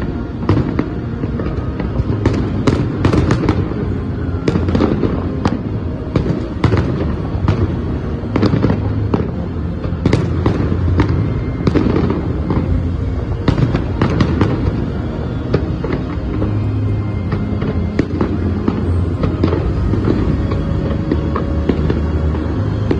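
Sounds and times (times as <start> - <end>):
continuous low rumble: 0.0 - 22.9
fireworks bangs: 0.0 - 22.9.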